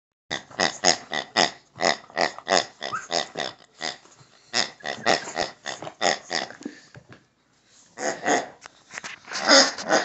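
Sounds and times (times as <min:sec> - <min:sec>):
squeaky toy grunting oinks: 0:00.3 - 0:06.6, 0:08.0 - 0:08.6, 0:09.4 - 0:10.0.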